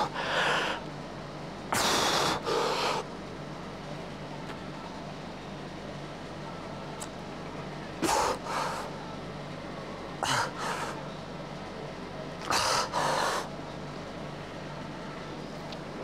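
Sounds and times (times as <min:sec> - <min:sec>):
man breathing forcefully: 0:00.0 - 0:00.8, 0:01.7 - 0:03.0, 0:10.2 - 0:11.0, 0:12.5 - 0:13.5.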